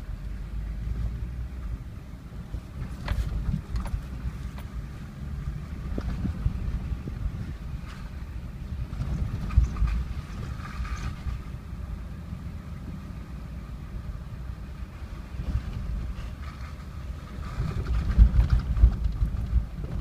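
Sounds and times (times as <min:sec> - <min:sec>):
jeep engine and tyre rumble: 0:00.0 - 0:20.0.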